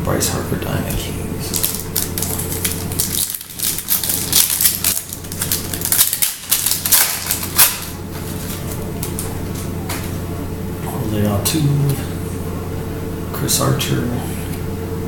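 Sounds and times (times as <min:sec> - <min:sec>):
foil wrapper crinkling: 0:01.4 - 0:10.1.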